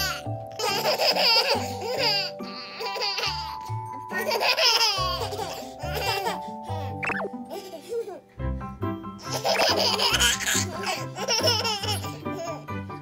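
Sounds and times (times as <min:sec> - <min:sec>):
babies laughing: 0:00.0 - 0:08.3, 0:09.2 - 0:12.7.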